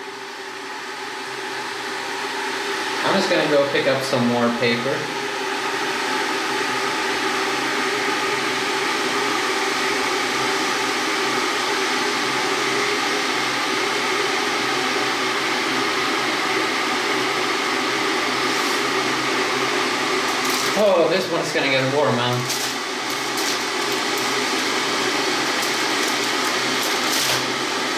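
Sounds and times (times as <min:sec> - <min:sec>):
water heater hissing: 0:02.0 - 0:27.9.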